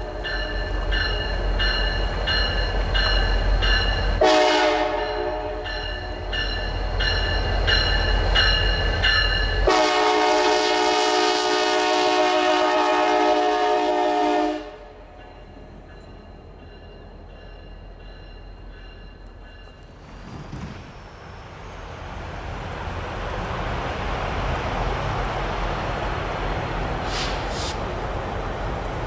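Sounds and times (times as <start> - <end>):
diesel locomotive rumble: 0.0 - 29.0
locomotive air horn chord: 4.2 - 5.8, 9.6 - 15.0.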